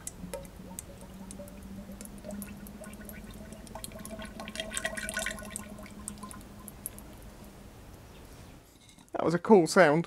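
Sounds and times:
oil gurgling and bubbling: 0:00.0 - 0:07.9
steady low hum: 0:00.0 - 0:09.1.

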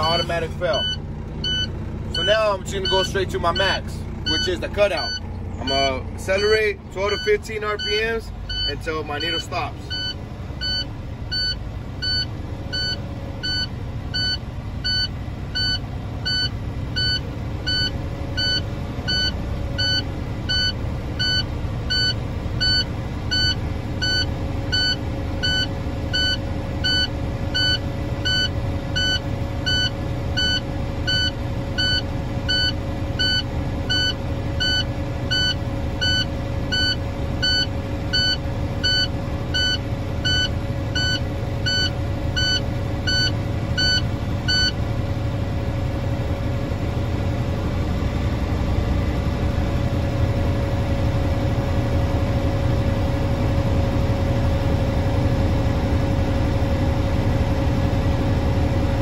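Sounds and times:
warning beeper: 0:00.0 - 0:44.8
truck diesel engine fast idle: 0:00.0 - 0:59.0.

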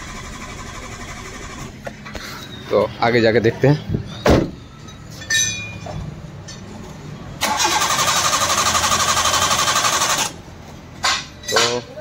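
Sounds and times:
starter motor cranking engine: 0:00.0 - 0:01.8, 0:07.4 - 0:10.4.

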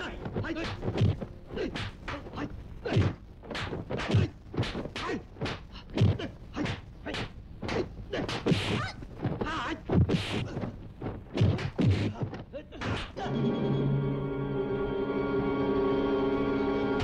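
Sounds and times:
punch and kick thwacks: 0:02.9 - 0:10.7, 0:11.3 - 0:13.1.

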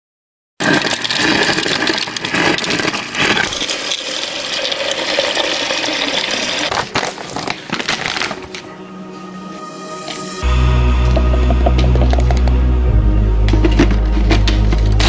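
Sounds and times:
water filling plastic cup: 0:00.6 - 0:07.5.

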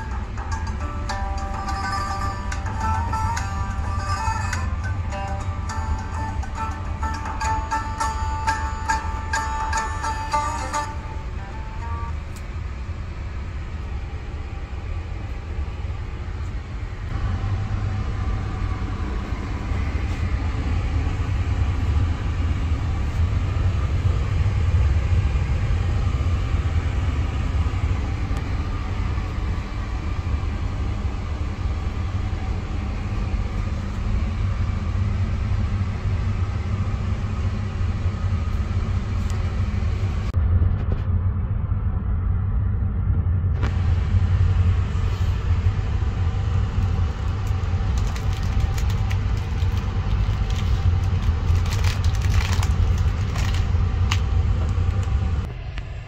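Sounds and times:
train carriage rumble: 0:00.0 - 0:56.0
plastic packaging crinkling: 0:47.4 - 0:54.3.

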